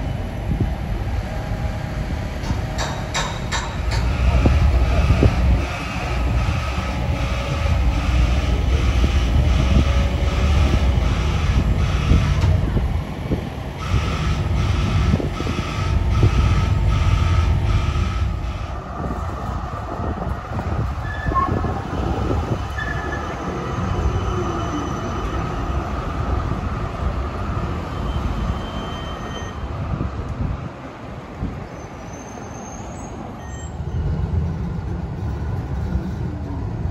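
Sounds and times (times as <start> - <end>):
street sound: 0.0 - 36.9
tram rumbling on rails: 0.0 - 36.9
short high squeaks: 31.7 - 33.9.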